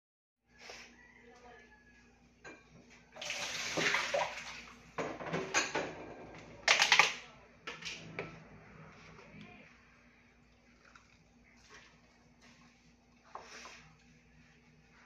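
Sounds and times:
water splashing: 3.2 - 4.8.

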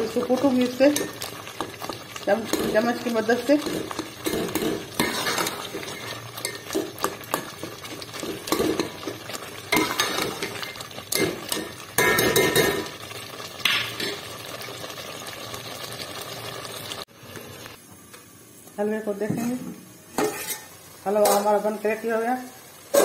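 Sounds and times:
metal ladle knocking and scraping pot: 3.6 - 12.9, 20.2 - 20.7.

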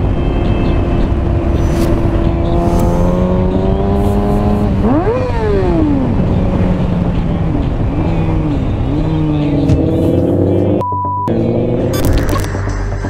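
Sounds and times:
motorcycle engine revving: 0.6 - 12.5
censor bleep: 10.8 - 11.3.

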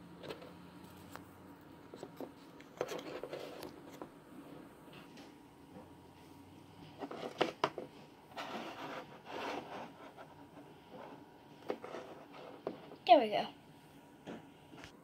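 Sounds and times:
pieces scraping and rubbing: 7.0 - 13.0.

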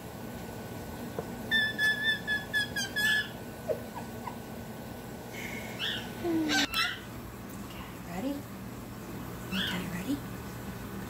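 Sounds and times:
bird whistle warbling: 1.5 - 3.4.

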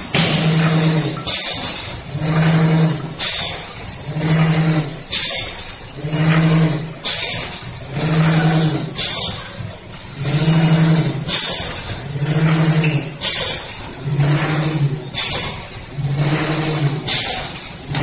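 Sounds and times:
pneumatic hiss: 0.0 - 2.0, 3.2 - 3.8, 5.1 - 5.6, 7.0 - 7.7, 9.0 - 9.6, 11.3 - 12.0, 12.8 - 13.8, 15.1 - 15.8, 17.0 - 17.8.

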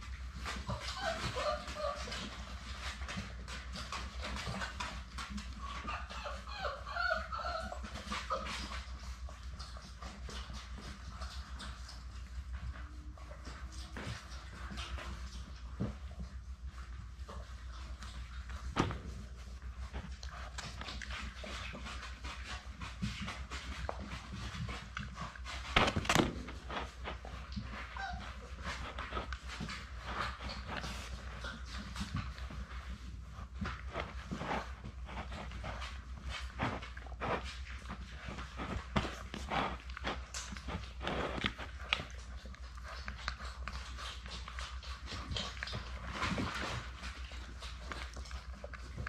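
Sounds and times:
puppies whimpering and squeaking: 0.3 - 33.0.

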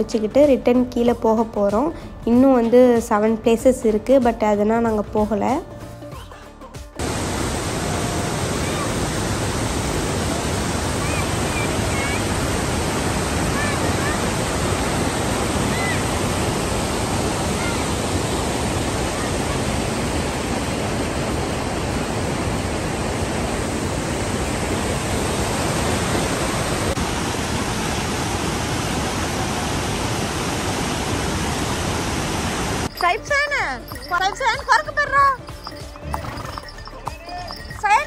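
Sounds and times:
stream rushing over boulders: 7.0 - 33.0, 33.8 - 38.0.

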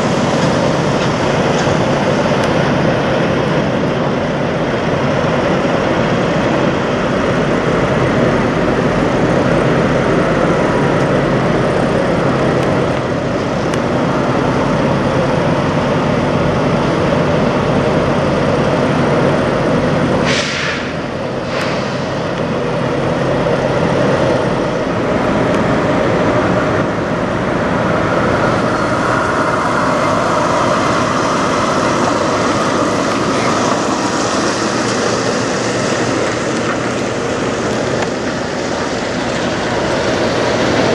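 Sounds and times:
truck diesel engines idling: 0.0 - 40.9
short air hisses: 20.2 - 22.2.

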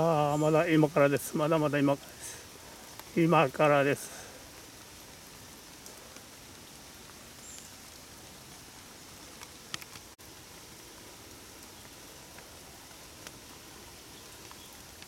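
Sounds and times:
light rain hissing: 0.0 - 15.0
raindrops tapping on umbrella: 2.6 - 3.6, 4.2 - 10.2, 11.3 - 15.0.

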